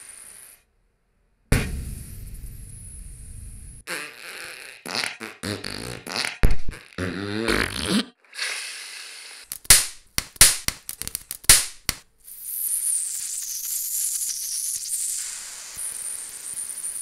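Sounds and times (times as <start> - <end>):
sharp pops: 4.8 - 6.8, 9.5 - 12.1
capacitor sputtering fizz: 12.3 - 17.0
high hiss: 12.3 - 17.0.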